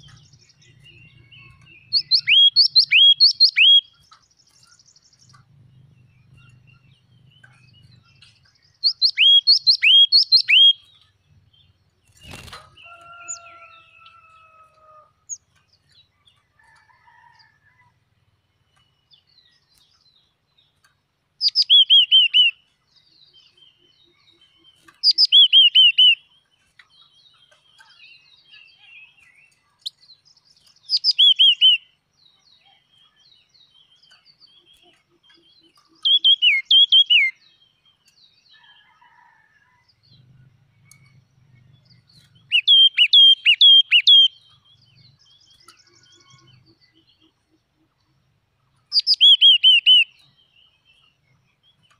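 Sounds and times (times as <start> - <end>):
songbird calling sharp notes: 0.0 - 5.4, 6.2 - 13.7, 21.4 - 22.7, 23.5 - 26.3, 27.7 - 32.0, 32.7 - 38.1, 40.8 - 48.0, 48.8 - 50.9.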